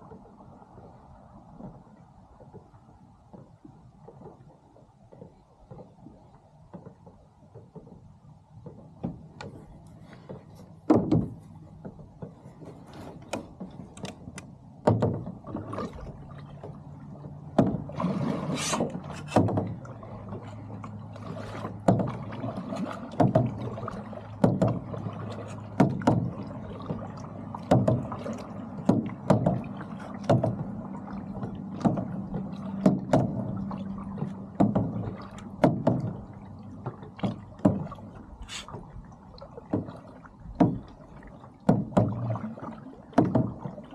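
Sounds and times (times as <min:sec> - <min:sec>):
low engine hum: 0:00.0 - 0:43.9
water slapping against hull: 0:00.0 - 0:43.9.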